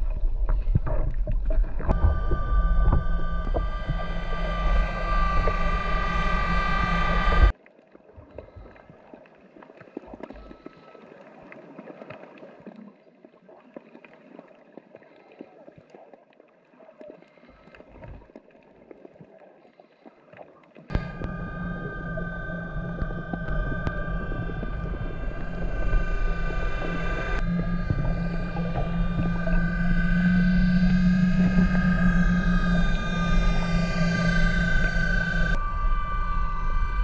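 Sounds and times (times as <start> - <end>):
underwater clicks and crackles: 0.0 - 6.7, 7.3 - 35.6
electric motor whine: 0.0 - 7.5, 20.9 - 37.0.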